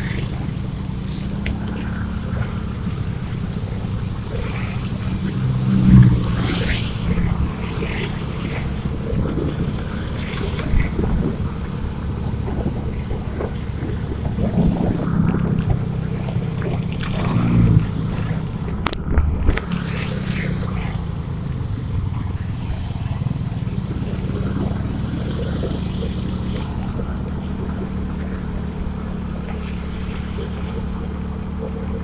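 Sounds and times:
motorcycle engine running: 0.0s - 32.0s
wind noise on microphone: 2.3s - 22.8s.

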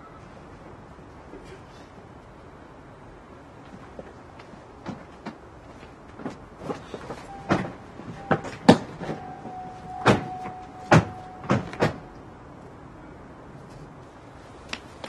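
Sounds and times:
car doors shutting: 6.6s - 12.2s
faint steady tone: 7.2s - 13.5s.

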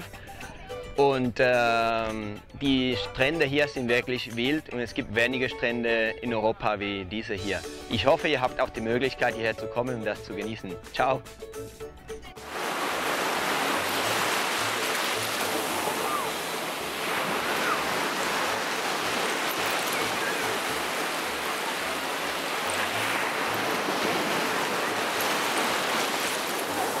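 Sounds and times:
small waves washing on sand: 12.4s - 27.0s.

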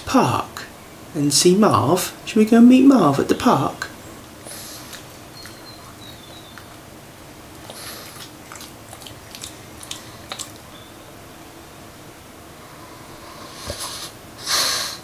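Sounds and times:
dog chewing with mouth clicks: 4.2s - 11.0s.

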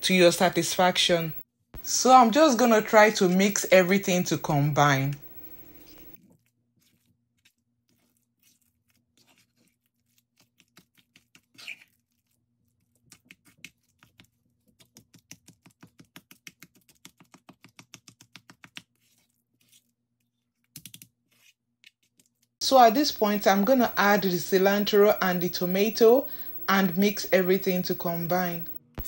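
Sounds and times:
spatula mashing avocado in mortar: 5.7s - 20.0s.

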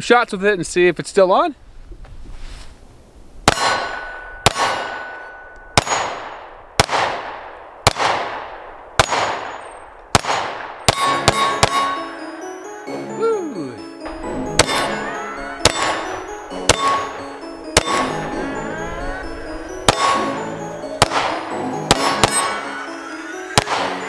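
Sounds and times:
steel targets ringing: 3.5s - 6.6s, 10.8s - 12.4s, 14.0s - 24.0s
pistol shots with echo: 3.5s - 12.1s, 14.5s - 18.5s, 19.8s - 22.7s, 23.6s - 24.0s.

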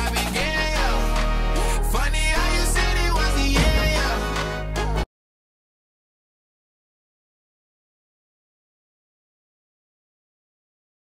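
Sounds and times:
background music: 0.0s - 5.1s.

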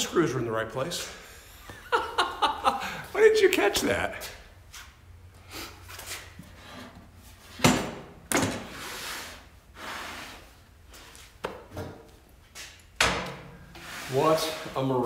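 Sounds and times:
scraping and rustling: 13.7s - 15.0s.

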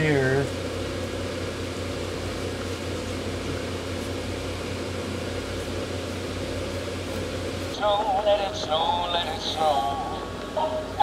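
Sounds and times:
blower fans droning: 0.0s - 11.0s.

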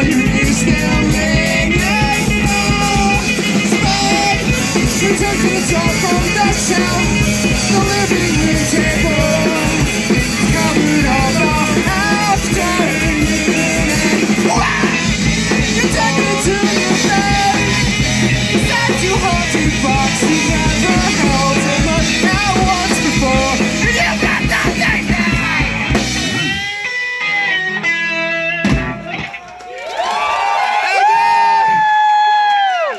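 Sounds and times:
man singing: 0.0s - 26.0s
live rock band: 0.0s - 32.9s.

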